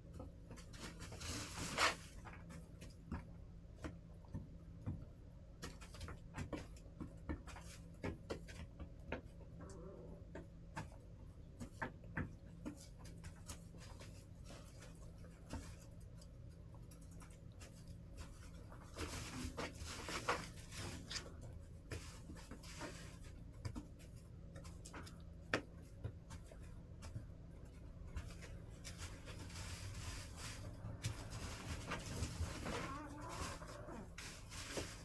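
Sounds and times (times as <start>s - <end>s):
hens pecking: 0.0s - 35.0s
hens scratching in litter: 0.6s - 3.1s, 12.4s - 35.0s.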